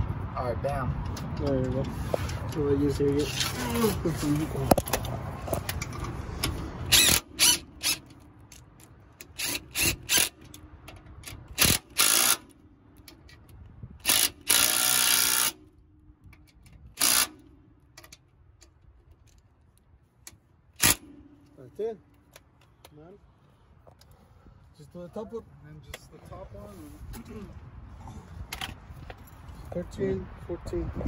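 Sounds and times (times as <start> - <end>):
cordless power driver bursts: 6.9 - 8.1, 11.3 - 12.5, 14.0 - 15.6, 17.0 - 17.4, 20.8 - 21.2.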